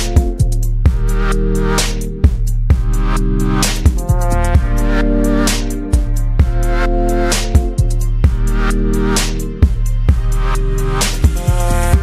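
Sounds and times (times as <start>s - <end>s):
steady bass: 0.0s - 12.0s
synth chords: 0.0s - 12.0s.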